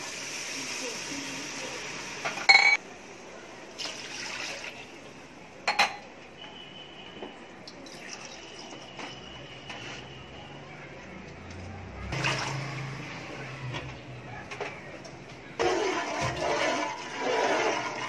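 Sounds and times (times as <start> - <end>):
utensils clanking on steel cookware: 2.3 - 2.8, 15.6 - 18.0
liquid pouring into pot: 3.8 - 4.8, 7.8 - 8.8, 15.6 - 18.0.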